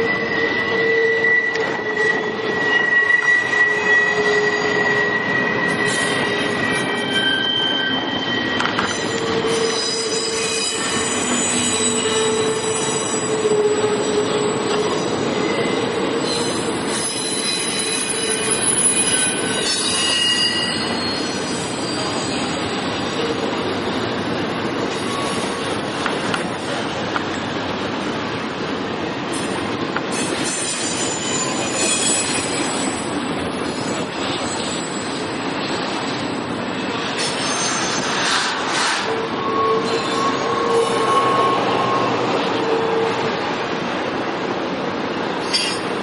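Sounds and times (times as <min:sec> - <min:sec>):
wheel squeal: 0:00.0 - 0:23.3, 0:30.1 - 0:33.1, 0:37.2 - 0:43.3, 0:45.4 - 0:45.9
train wheels rumbling on rail: 0:00.0 - 0:46.0.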